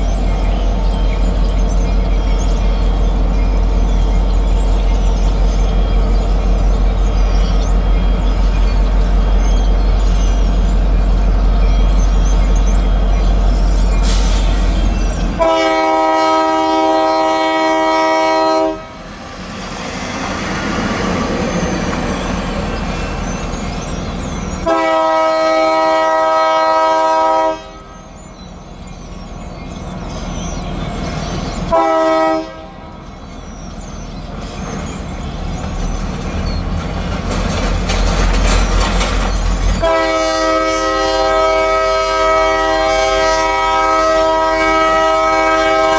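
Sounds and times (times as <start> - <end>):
train rumble: 0.0 - 45.9
locomotive air horn blasts: 15.4 - 19.1, 24.6 - 28.0, 31.7 - 32.9, 39.8 - 45.9.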